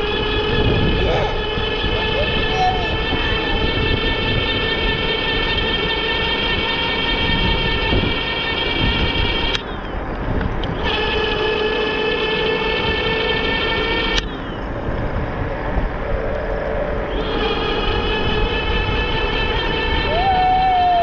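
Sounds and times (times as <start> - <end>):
wind noise rumble: 0.0 - 21.0
electric bike motor whining: 13.1 - 20.1.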